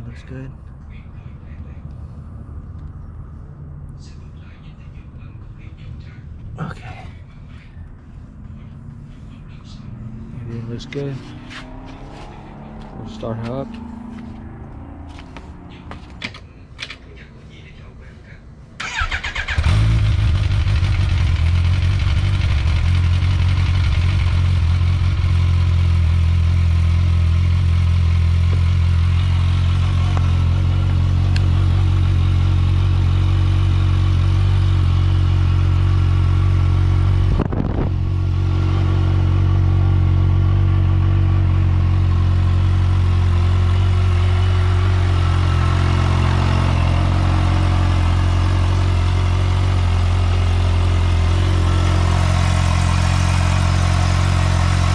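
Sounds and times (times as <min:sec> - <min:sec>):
motorcycle engine idling: 0:18.8 - 0:54.9.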